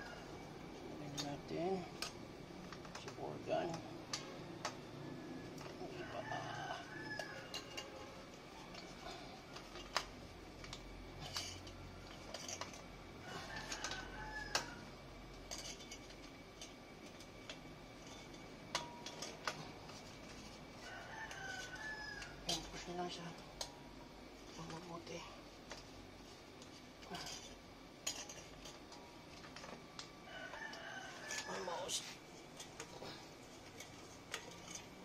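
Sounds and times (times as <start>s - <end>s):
distant rooster crowing: 0.0s - 0.6s, 4.8s - 9.8s, 13.1s - 15.0s, 20.7s - 22.6s, 30.1s - 32.1s
metal clinks and knocks: 7.1s - 22.7s, 26.6s - 31.6s, 32.3s - 35.0s.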